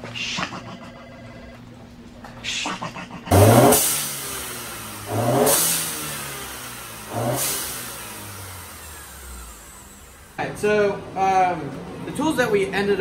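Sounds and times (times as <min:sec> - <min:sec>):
blow-off valve whoosh: 0:03.3 - 0:10.4
car engine revving: 0:03.3 - 0:11.1.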